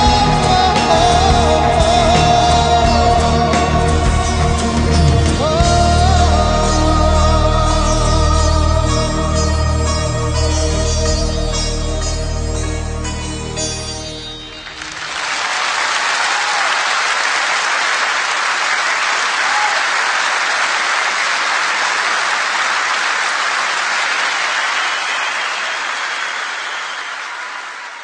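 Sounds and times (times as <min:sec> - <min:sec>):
music ending: 0:00.0 - 0:15.3
audience clapping: 0:14.6 - 0:28.0.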